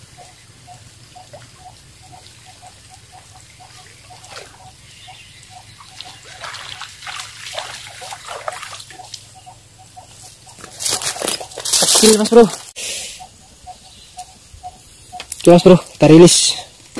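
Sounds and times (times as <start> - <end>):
light steady ticking: 0.0 - 6.4, 8.0 - 16.9
fish thrashing and splashing: 3.4 - 4.8, 5.8 - 9.3, 10.6 - 12.2.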